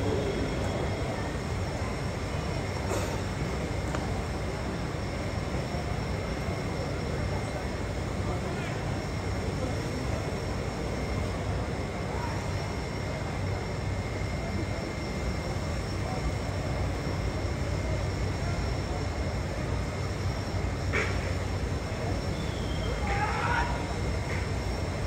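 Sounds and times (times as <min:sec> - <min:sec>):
faint voices: 0:00.0 - 0:25.0.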